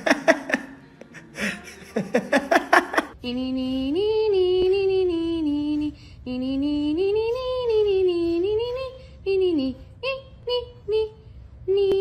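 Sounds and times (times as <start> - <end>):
person laughing: 0.0 - 3.2.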